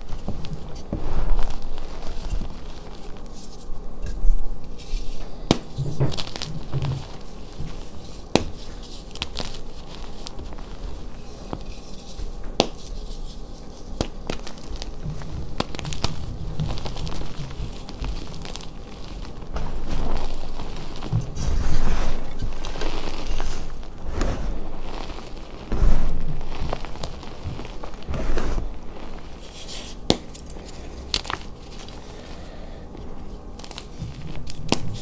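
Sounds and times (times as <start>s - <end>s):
chalk crunching in hands: 0.1s - 3.7s, 6.1s - 35.0s
chalk pieces snapping: 7.6s - 10.4s.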